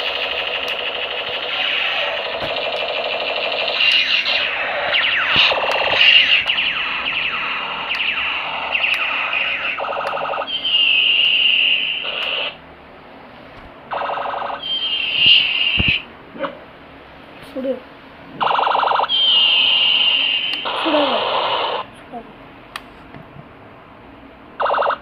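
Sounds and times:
high electronic tone: 0.0s - 12.6s, 13.9s - 16.0s
toy gun laser zaps: 0.0s - 12.6s, 13.9s - 16.0s, 18.4s - 21.9s.

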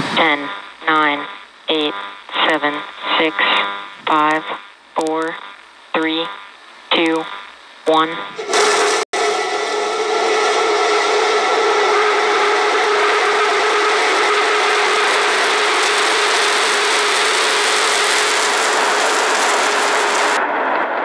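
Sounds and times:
rocket engines roaring: 8.4s - 21.0s.

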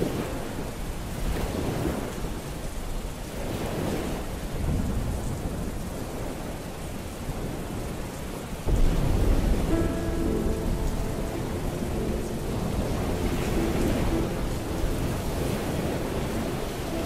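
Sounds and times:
steady rain: 0.0s - 17.0s
rumbling thunder: 8.7s - 17.0s
soft sustained music notes: 8.7s - 17.0s.

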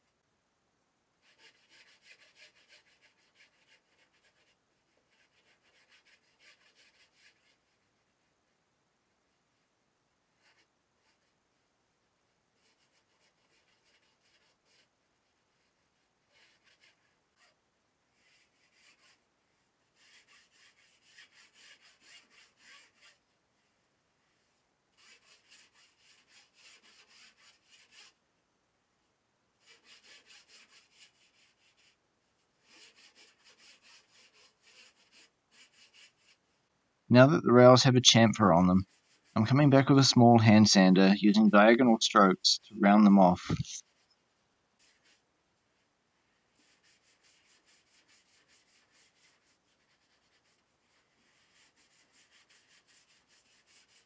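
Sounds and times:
rasp shaving foam: 20.0s - 23.2s, 32.6s - 36.4s, 46.6s - 54.0s.

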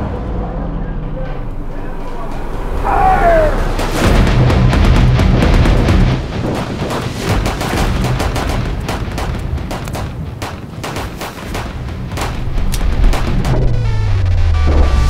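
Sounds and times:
handgun fire volley: 6.5s - 13.6s.

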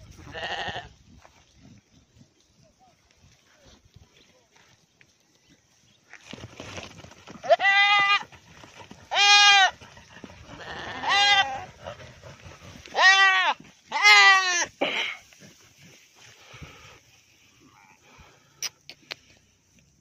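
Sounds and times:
goat screaming bleats: 0.2s - 0.9s, 7.4s - 8.3s, 9.1s - 9.8s, 10.5s - 11.7s, 12.9s - 14.7s.

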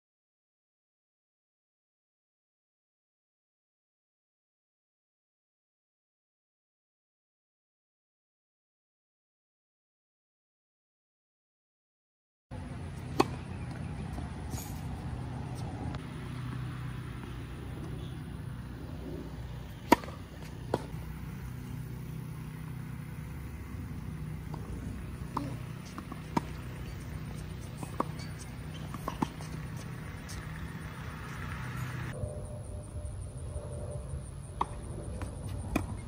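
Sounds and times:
tennis ball bouncing on hard court: 12.6s - 32.1s, 34.6s - 36.0s
tennis ball struck by rackets: 12.6s - 32.1s, 34.6s - 36.0s.

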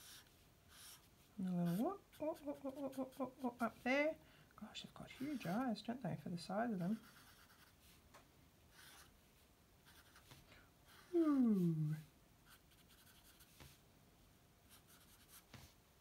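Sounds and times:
marker scratching on paper: 0.0s - 3.8s, 5.2s - 5.6s, 6.8s - 7.8s, 8.7s - 9.1s, 9.8s - 11.1s, 12.5s - 13.8s, 14.7s - 15.7s
woman humming: 1.4s - 3.7s, 11.0s - 12.1s.

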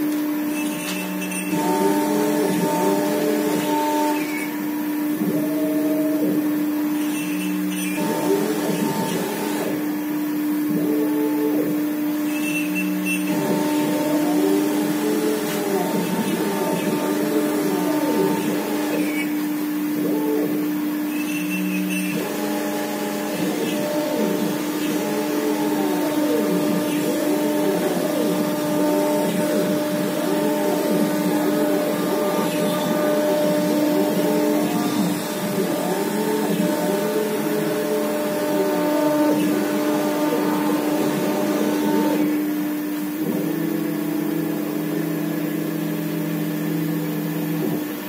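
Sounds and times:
router spindle humming: 0.0s - 48.0s
motor tones rising and falling: 10.7s - 42.4s.

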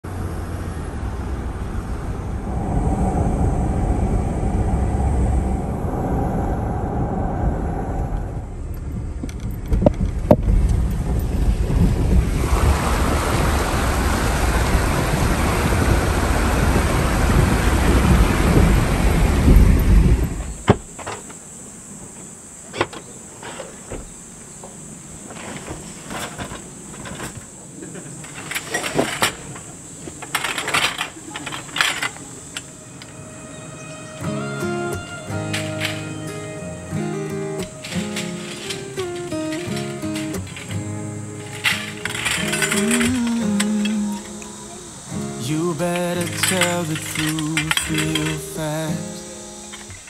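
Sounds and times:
road rumble while driving: 0.0s - 21.6s
water splashing under tyres: 9.6s - 20.5s.

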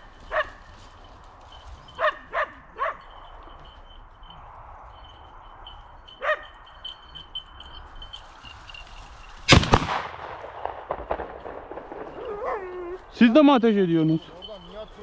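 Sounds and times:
shotgun firing: 9.5s - 12.2s.

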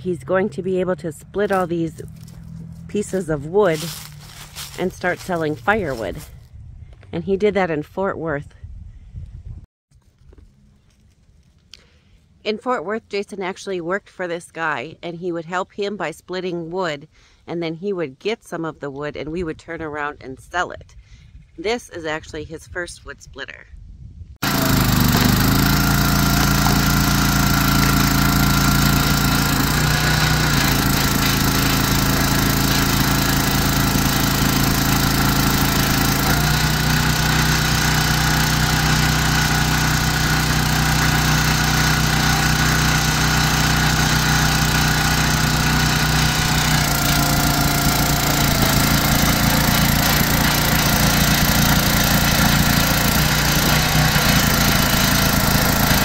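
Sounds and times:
small gasoline engine running: 0.6s - 6.3s, 24.4s - 56.0s.

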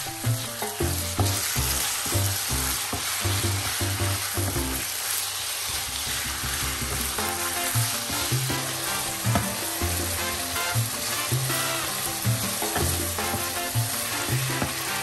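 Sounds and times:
background music with bass line: 0.0s - 4.9s, 5.9s - 15.0s
meat sizzling in oil in a wok: 0.0s - 15.0s
wooden spatula scraping a wok: 0.5s - 15.0s.

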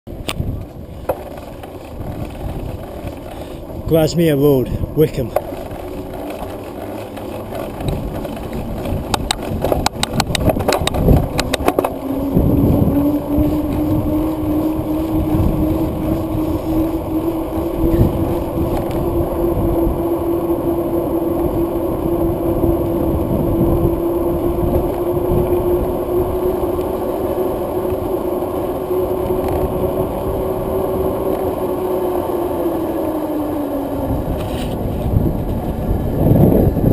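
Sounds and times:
tyre rumble: 0.1s - 3.9s, 4.8s - 20.6s
vehicle motor hum: 0.1s - 36.9s
wind: 0.1s - 36.9s
quick run of clicks: 5.0s - 12.0s.

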